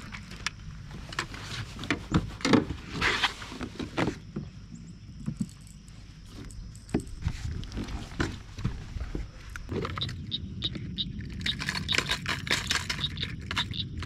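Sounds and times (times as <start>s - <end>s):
rustling scrape: 0.9s - 4.2s, 6.2s - 10.0s.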